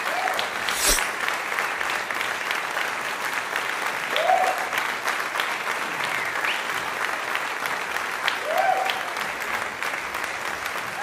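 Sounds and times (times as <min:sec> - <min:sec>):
many hands clapping: 0:00.0 - 0:11.0
short rising call: 0:00.6 - 0:01.1.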